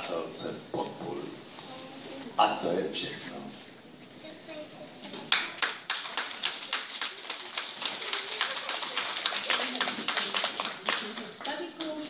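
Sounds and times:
children applauding: 5.3s - 12.0s.

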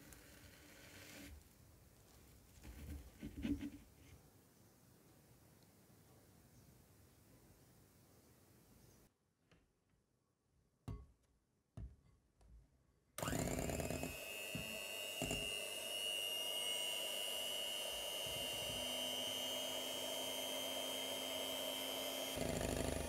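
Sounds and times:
electric hand mixer whining: 13.2s - 23.0s.

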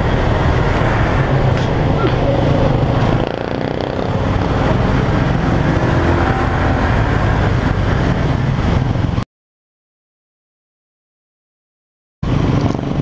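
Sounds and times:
motorcycle engine running: 0.0s - 9.2s, 12.2s - 13.0s
wind noise on microphone: 0.0s - 9.2s, 12.2s - 13.0s.

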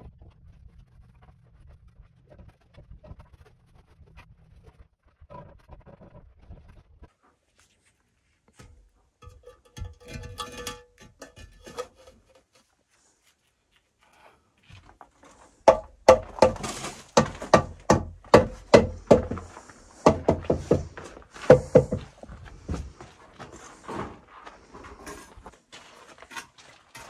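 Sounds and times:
sharp knocks: 15.7s - 22.1s.

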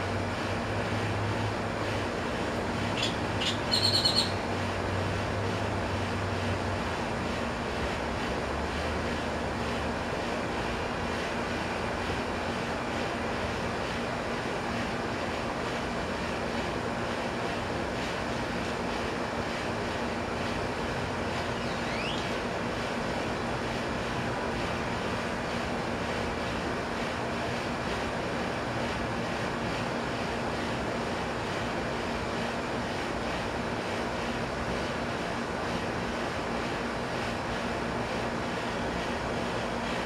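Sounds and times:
rushing outdoor background noise: 0.0s - 40.0s
bird chirping: 3.0s - 4.4s, 21.6s - 22.2s
rising bird whistle: 3.0s - 4.4s, 21.6s - 22.3s.

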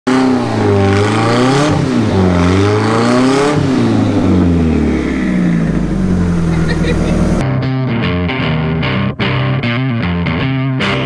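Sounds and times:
car engine revving hard: 0.0s - 7.4s.

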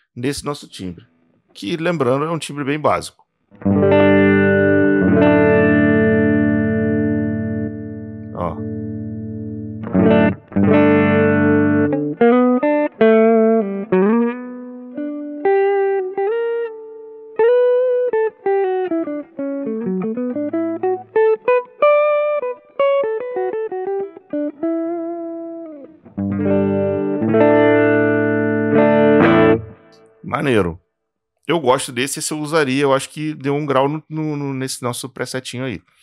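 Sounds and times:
clean electric guitar: 3.5s - 30.4s.

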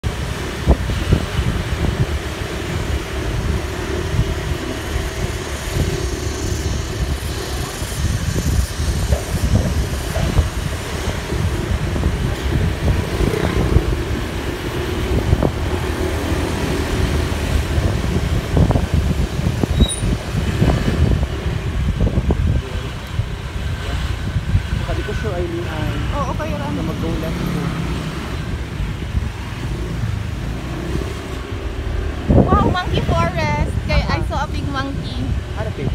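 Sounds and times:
passing traffic: 0.0s - 35.9s.

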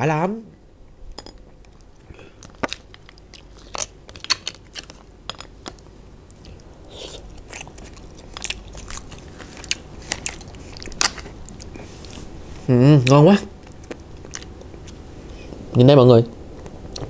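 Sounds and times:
chewing with mouth clicks: 1.6s - 12.4s, 13.0s - 15.6s.

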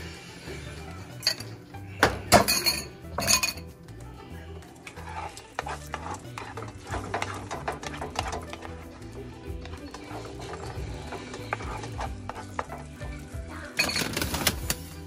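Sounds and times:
fork scraping ceramic bowl: 4.9s - 8.6s, 9.7s - 12.8s.

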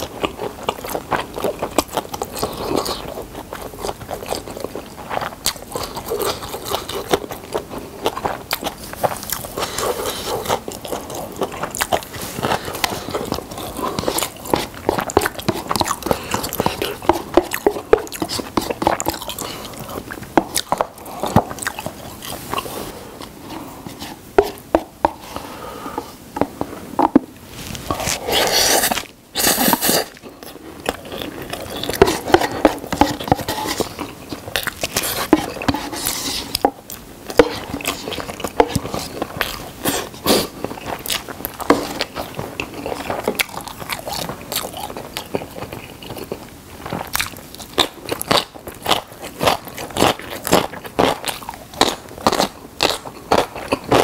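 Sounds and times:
wet chewing and smacking: 0.0s - 25.5s, 26.3s - 54.0s
chopsticks scraping paper cup: 22.3s - 30.2s, 31.5s - 39.2s
loud noodle slurp: 27.8s - 30.2s.

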